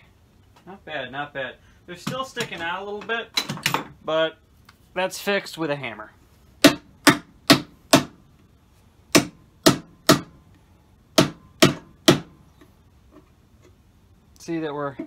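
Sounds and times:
hammer striking nails into wood: 0:06.6 - 0:08.2, 0:09.1 - 0:10.4, 0:11.2 - 0:12.4.

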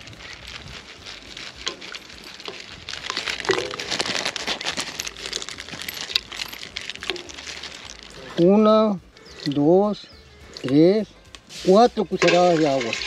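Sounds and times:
paper wrapper crinkling: 0:00.0 - 0:08.5, 0:11.3 - 0:13.0
sugar pieces dropping into water: 0:01.6 - 0:08.2, 0:12.2 - 0:13.0.

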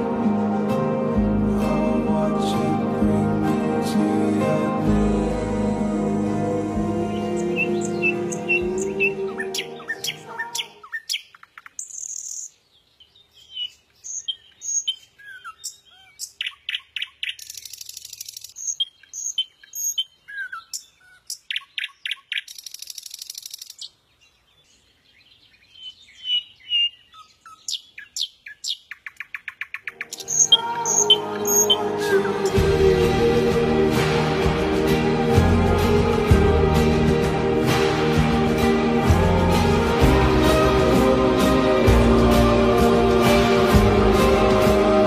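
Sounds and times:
music: 0:00.0 - 0:10.8, 0:30.0 - 0:45.0
birds chirping and whistling: 0:07.0 - 0:32.6.

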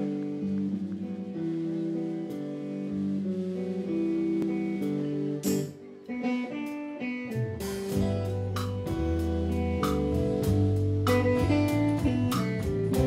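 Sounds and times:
bass guitar: 0:00.0 - 0:13.0
drums with cymbal strikes: 0:00.0 - 0:13.0
guitars picking notes: 0:00.0 - 0:13.0.

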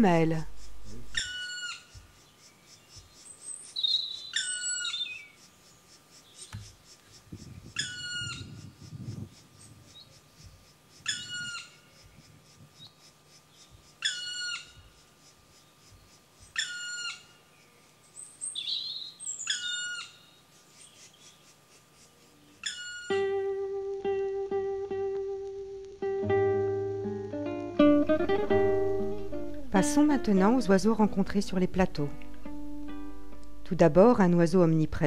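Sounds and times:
acoustic guitar music: 0:00.0 - 0:01.2, 0:23.1 - 0:34.9
woodpecker drawn-out call: 0:00.3 - 0:23.4.

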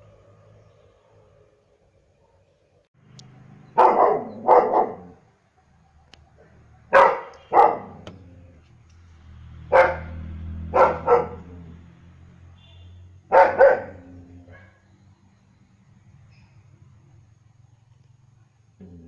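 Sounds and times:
dog barking: 0:03.8 - 0:05.2, 0:06.4 - 0:08.0, 0:09.7 - 0:11.6, 0:13.3 - 0:14.8.

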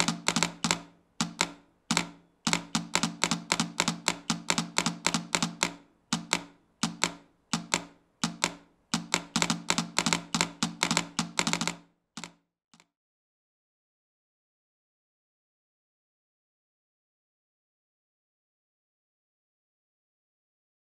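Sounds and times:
telegraph keys clicking: 0:00.0 - 0:12.3.

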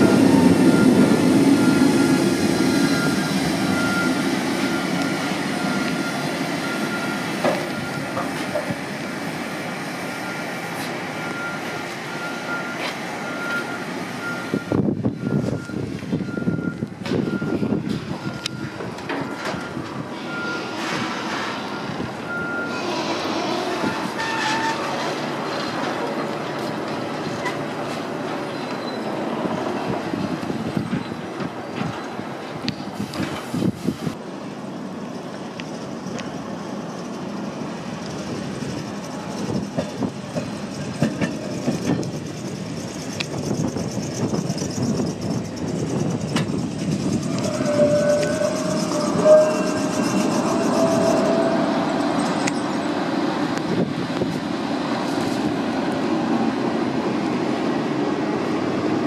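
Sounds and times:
reversing alarm beeping: 0:00.0 - 0:08.2, 0:10.1 - 0:20.9, 0:21.6 - 0:22.9, 0:47.0 - 0:52.7
streetcar wheels squealing: 0:00.0 - 0:34.0, 0:35.1 - 0:54.3
streetcar rolling on track: 0:00.0 - 0:59.0.

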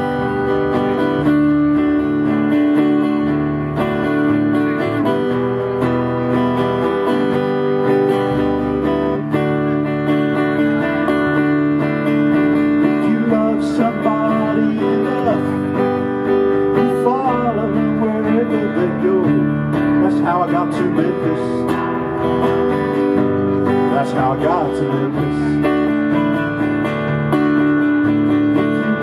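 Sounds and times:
bass line: 0:00.0 - 0:29.0
strummed acoustic guitar: 0:00.0 - 0:29.0
man singing: 0:12.6 - 0:22.1, 0:23.6 - 0:25.9.

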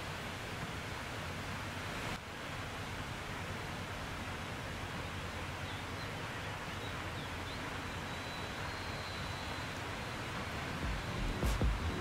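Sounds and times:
water: 0:00.0 - 0:12.0
wind: 0:00.0 - 0:12.0
faint high bird chirps: 0:05.6 - 0:10.2
cargo ship rumble: 0:10.4 - 0:12.0.

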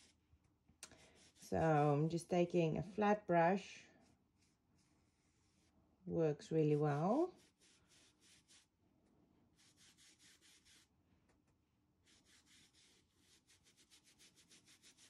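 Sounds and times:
paintbrush swishing on fabric: 0:01.1 - 0:01.9, 0:04.4 - 0:05.8, 0:06.4 - 0:08.7, 0:09.6 - 0:10.9, 0:12.0 - 0:15.0.

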